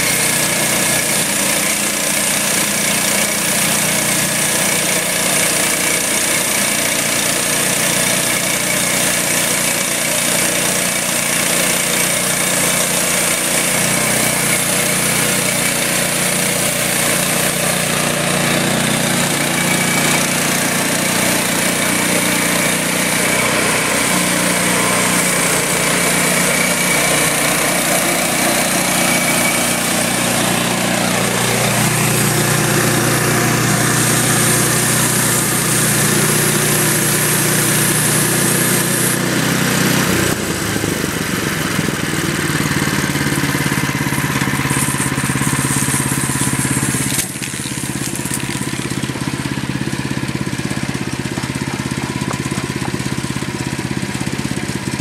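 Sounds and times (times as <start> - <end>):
band blade cutting log: 0.0 - 55.0
small gas engine running: 0.0 - 55.0.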